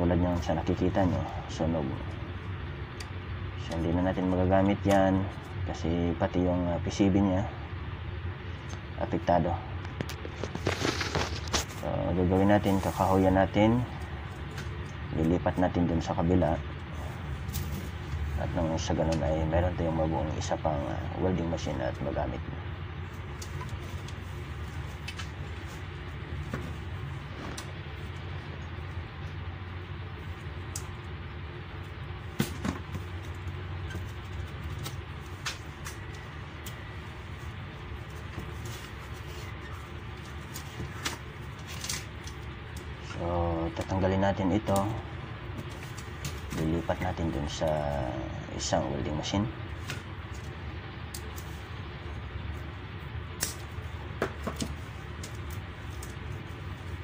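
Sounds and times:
steady low background noise: 0.0 - 57.0
steady low background rumble: 0.0 - 57.0
hands handling wiring and metal parts: 23.0 - 28.9, 31.8 - 44.0, 44.6 - 47.9, 53.4 - 57.0
clicks and knocks of handling wiring: 24.8 - 25.7, 38.0 - 42.9, 53.4 - 56.8.

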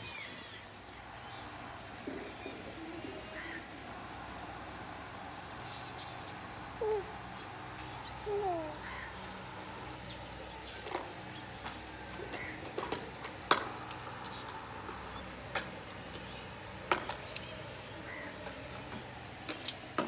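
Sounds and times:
twigs snapping and crackling in fire: 17.1 - 17.5.

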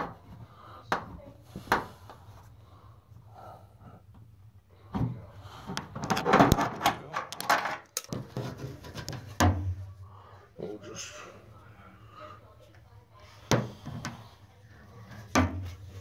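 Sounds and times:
parts clicking and knocking: 5.7 - 9.3.

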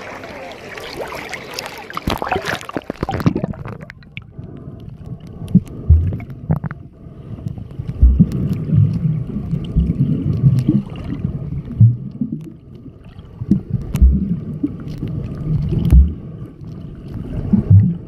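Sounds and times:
seawater sloshing and splashing: 0.0 - 4.1, 7.9 - 11.9
muffled underwater gurgling: 1.1 - 18.0
dull low thumps: 5.4 - 6.9, 7.9 - 10.8, 13.5 - 14.7, 15.8 - 16.3.

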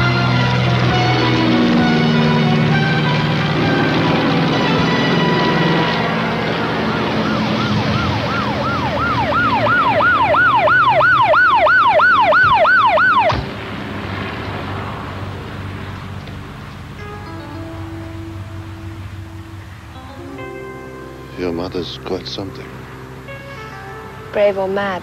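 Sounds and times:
police siren yelping: 0.0 - 13.4.

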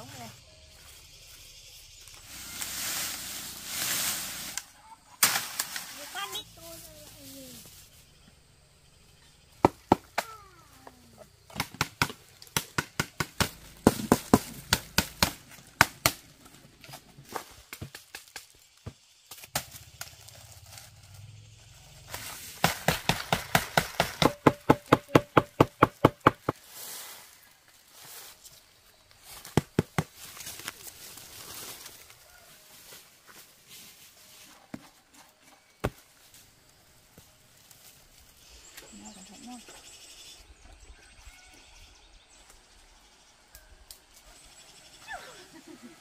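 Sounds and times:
hand tool chopping blows: 22.6 - 26.6.

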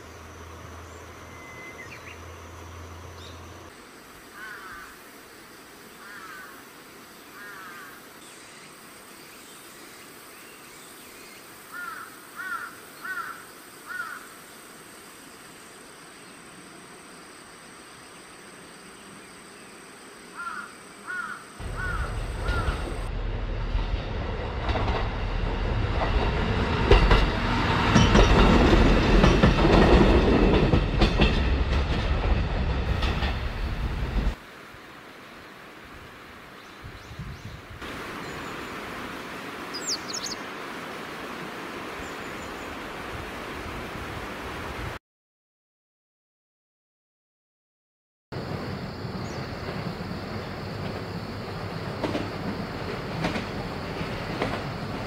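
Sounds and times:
bird calling: 11.7 - 14.4, 20.3 - 23.1, 39.7 - 40.4.

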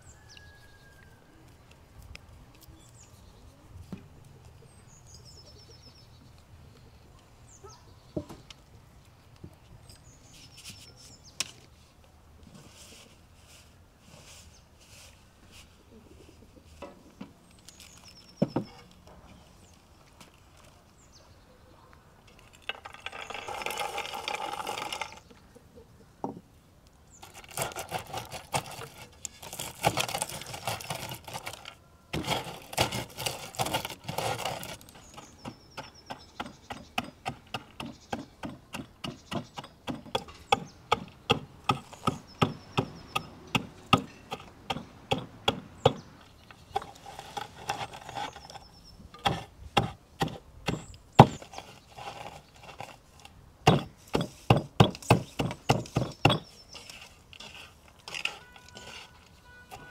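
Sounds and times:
rustling of herbs: 8.4 - 21.2, 22.2 - 25.4, 27.1 - 35.9, 46.2 - 49.0, 50.7 - 59.9
stone crushing walnuts in a bowl: 22.5 - 25.2, 49.2 - 53.0, 53.6 - 59.9.

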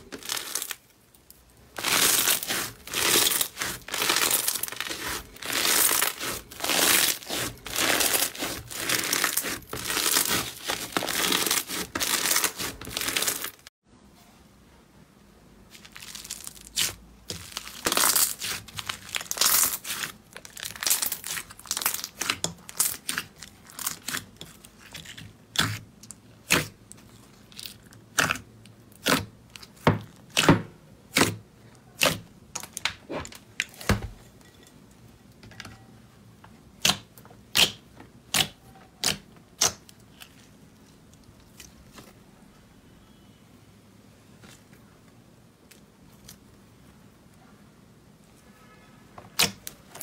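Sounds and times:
slime crackling and popping: 0.0 - 13.7, 15.7 - 31.4, 36.8 - 40.5, 49.3 - 50.0.

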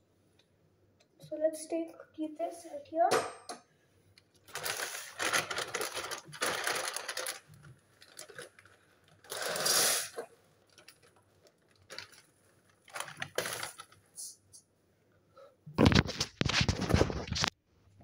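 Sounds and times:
plastic packet rustling: 4.4 - 9.6, 10.6 - 14.1.

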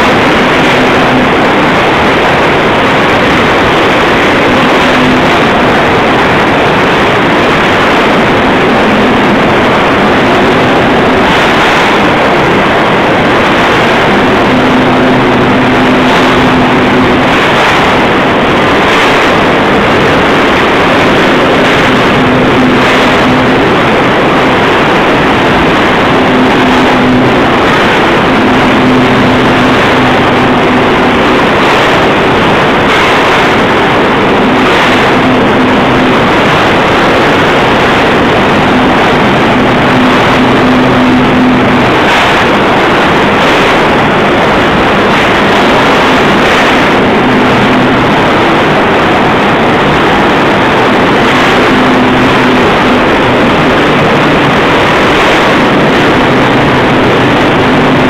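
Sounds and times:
low hum: 0.0 - 58.0
rolling mill mechanical din: 0.0 - 58.0.

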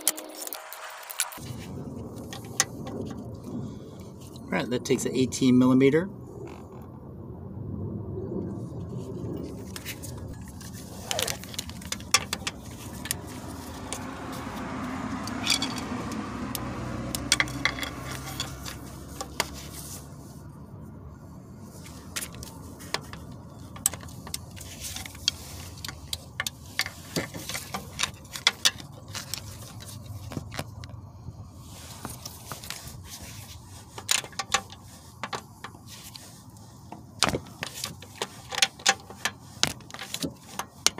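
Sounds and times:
metal tools clinking and scraping: 9.7 - 14.6, 15.2 - 16.3, 17.0 - 20.1, 21.8 - 30.6, 31.9 - 40.9.

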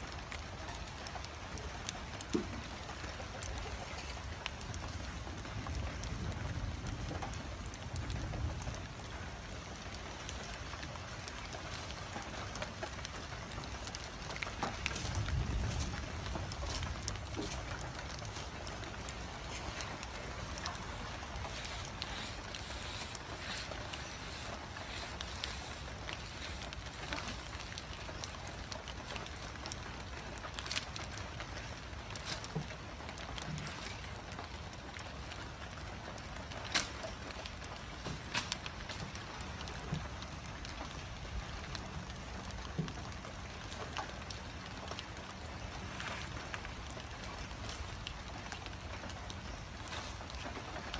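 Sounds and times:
light rain falling: 0.0 - 50.9
elephant rustling leafy branches: 9.8 - 34.7, 43.7 - 50.9
branches snapping: 9.8 - 35.4, 36.1 - 40.8, 45.7 - 50.9.

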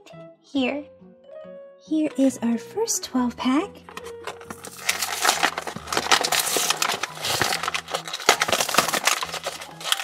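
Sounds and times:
plastic packaging crinkling: 4.1 - 10.0.

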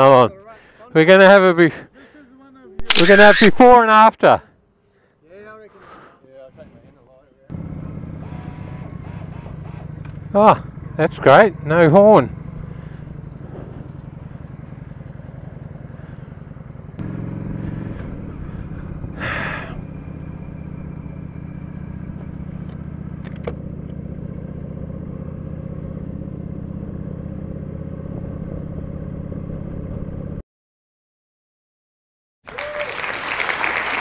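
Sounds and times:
motorcycle engine idling: 7.5 - 30.4.

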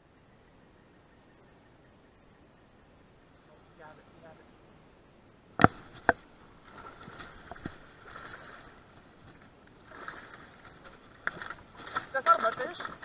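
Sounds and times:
faint splashing: 5.6 - 13.0
rustling: 5.6 - 13.0.

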